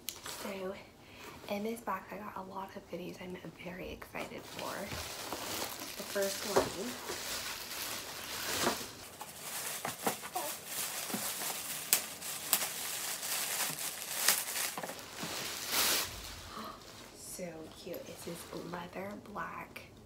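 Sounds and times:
plastic bag rustling and crinkling: 0.1s - 0.9s, 4.1s - 19.2s.

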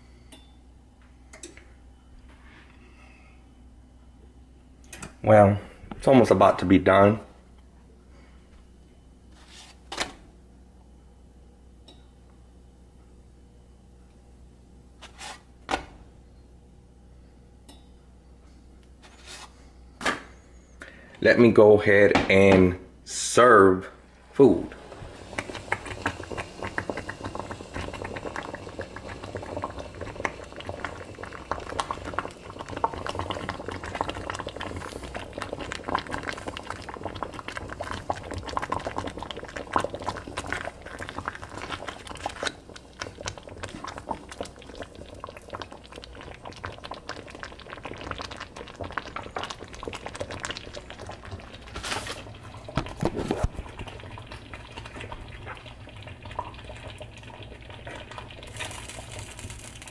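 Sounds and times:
thick sauce bubbling and popping: 25.1s - 59.9s.

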